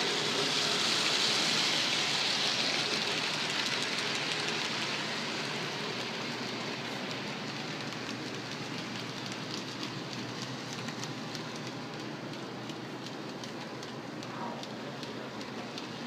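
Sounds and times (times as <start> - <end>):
model train rolling hiss: 0.0 - 16.0.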